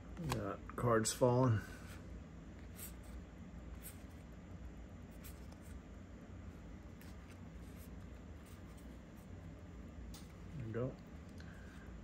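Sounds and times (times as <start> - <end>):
low room hiss: 0.0 - 12.0
trading cards sliding and flicking: 10.1 - 10.5.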